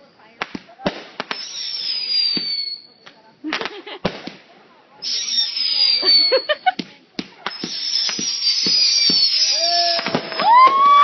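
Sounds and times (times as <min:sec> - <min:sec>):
firework crackles and pops: 0:00.0 - 0:11.0
firework hiss and falling whistle: 0:01.3 - 0:03.0, 0:05.0 - 0:06.6, 0:07.5 - 0:11.0.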